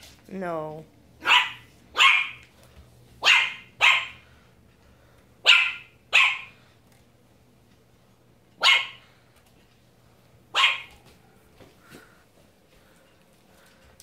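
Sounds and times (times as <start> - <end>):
puppy barking high-pitched: 1.2 - 2.4, 3.2 - 4.2, 5.4 - 6.6, 8.6 - 9.0, 10.5 - 11.0.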